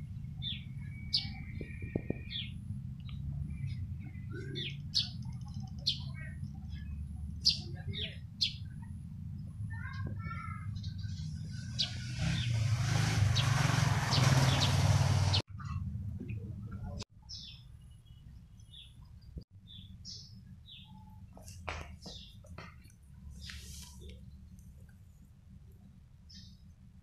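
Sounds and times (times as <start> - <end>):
sparrows chirping: 0.0 - 15.8, 16.6 - 24.9, 26.1 - 26.7
loud rushing noise: 11.5 - 15.4.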